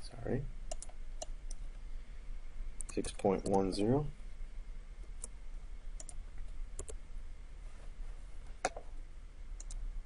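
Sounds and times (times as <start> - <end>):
faint low hum: 0.0 - 10.0
computer mouse clicking: 0.7 - 1.6, 2.8 - 3.7, 6.0 - 6.2, 6.8 - 7.0, 9.6 - 9.8.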